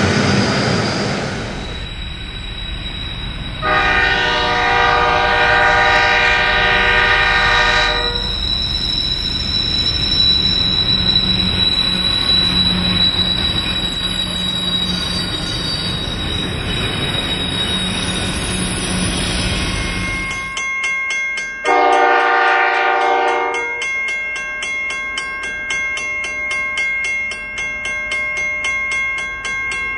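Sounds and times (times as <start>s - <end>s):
diesel locomotive engine rumble: 0.0s - 20.6s
wheel and rail noise: 0.0s - 21.6s
locomotive horn chord: 3.6s - 8.3s, 21.7s - 23.7s.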